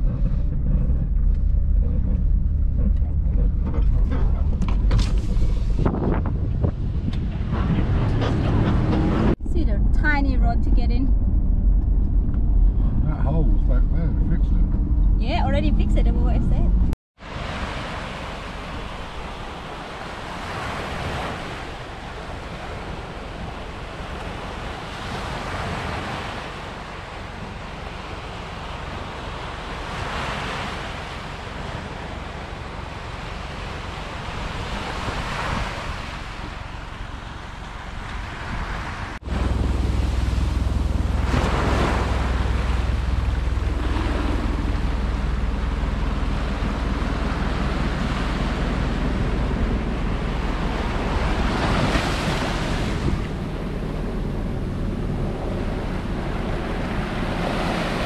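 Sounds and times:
wind rumble on microphone: 0.0s - 58.0s
ocean waves breaking on beach: 17.2s - 58.0s.

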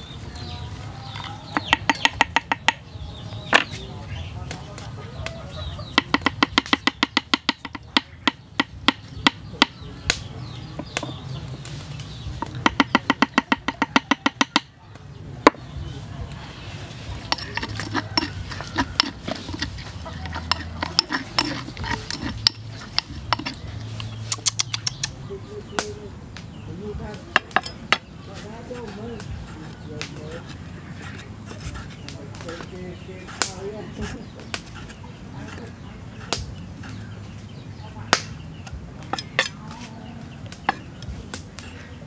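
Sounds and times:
pestle pounding in wooden mortar: 1.5s - 3.7s, 5.8s - 10.2s, 12.2s - 14.8s, 17.1s - 25.1s, 27.3s - 28.1s.

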